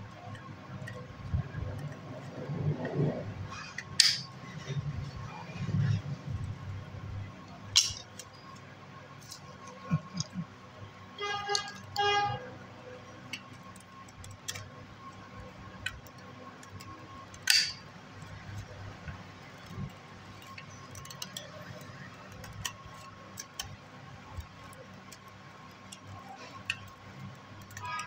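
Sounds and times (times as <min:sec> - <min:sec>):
metal snips cutting wire: 0:03.8 - 0:04.3, 0:07.7 - 0:08.5, 0:15.8 - 0:17.8.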